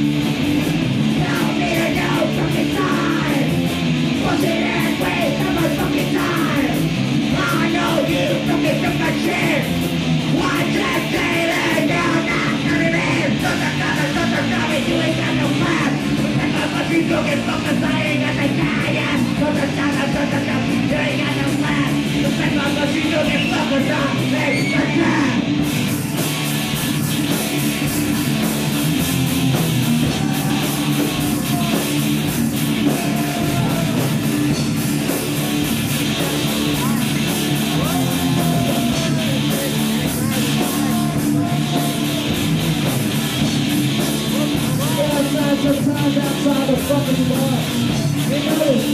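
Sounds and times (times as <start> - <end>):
live rock band playing: 0.0 - 48.9
person shouting vocals: 30.0 - 32.1, 32.7 - 34.3, 36.6 - 42.4.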